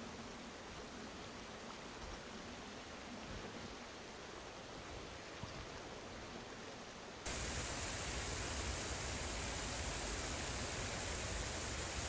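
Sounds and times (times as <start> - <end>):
stream flowing over rocks: 3.6 - 12.0.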